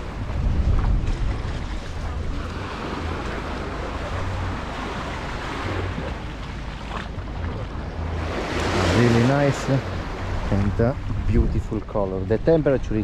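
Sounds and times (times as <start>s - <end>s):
wind noise on microphone: 0.0s - 9.2s, 9.8s - 13.0s
small waves washing on shore: 0.0s - 11.9s.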